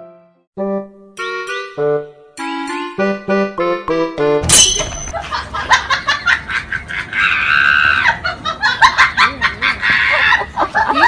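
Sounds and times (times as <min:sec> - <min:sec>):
human laughter: 0:05.1 - 0:11.0.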